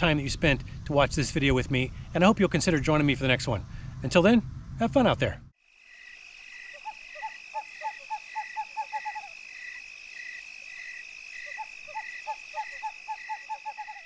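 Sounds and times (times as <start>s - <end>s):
high insect drone: 5.6s - 14.0s
pulsing insect call: 5.6s - 14.0s
short repeated animal calls: 6.5s - 14.0s.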